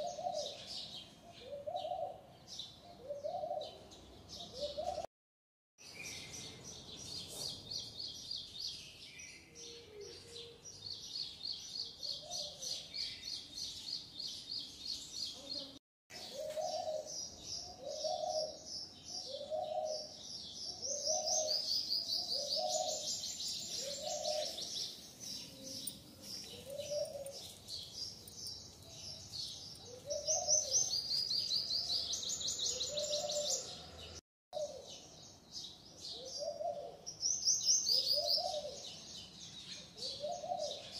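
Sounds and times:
birds chirping in high trills: 0:16.1 - 0:34.2.

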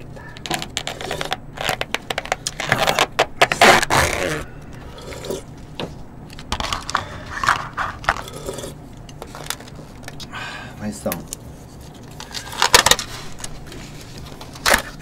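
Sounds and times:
spoons scraping plastic tubs: 0:00.2 - 0:05.5.

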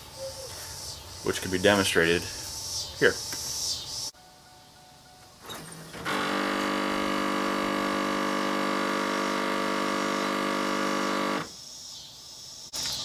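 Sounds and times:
headlight motor grinding buzz: 0:06.0 - 0:11.5.

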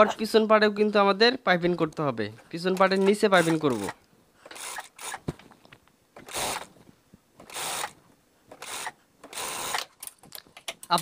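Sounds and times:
sewing machine running in bursts: 0:07.5 - 0:07.9.

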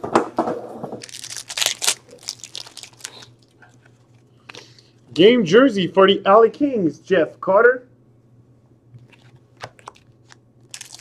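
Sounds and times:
wrapper tearing and crinkling: 0:01.0 - 0:03.6, 0:10.7 - 0:11.0.

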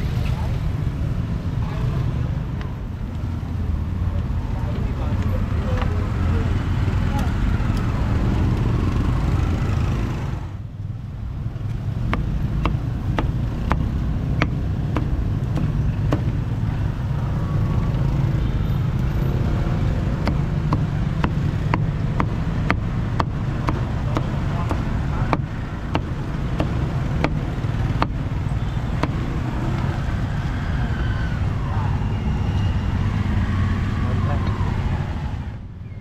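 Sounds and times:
low rumble of street traffic: 0:00.0 - 0:36.0
sharp knocks: 0:12.0 - 0:16.4, 0:20.0 - 0:28.2, 0:29.0 - 0:29.3.

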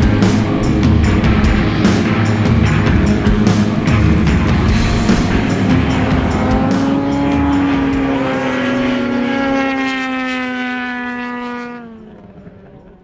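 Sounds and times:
music with drums: 0:00.0 - 0:09.3.

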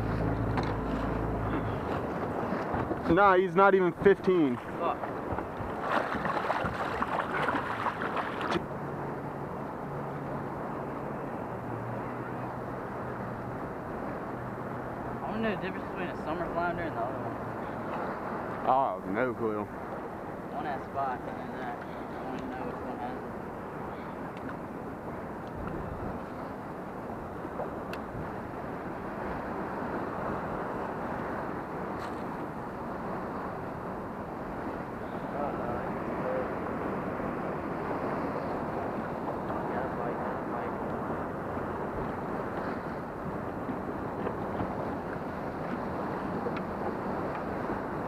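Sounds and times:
water splashing: 0:00.0 - 0:08.7
wind buffeting microphone: 0:00.0 - 0:08.8, 0:21.1 - 0:48.0
boat motor humming: 0:00.0 - 0:48.0
choppy water: 0:00.0 - 0:48.0
light tick: 0:27.9 - 0:28.1.

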